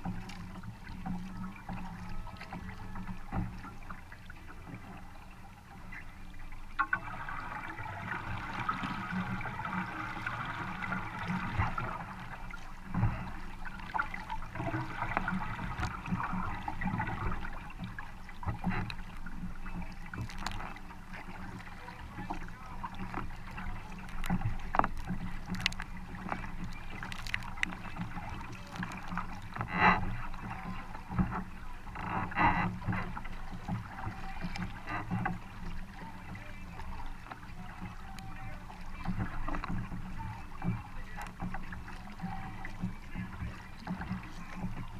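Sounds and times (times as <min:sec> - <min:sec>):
kayak paddle splashing: 0:00.0 - 0:44.9
water rushing along hull: 0:00.0 - 0:44.9.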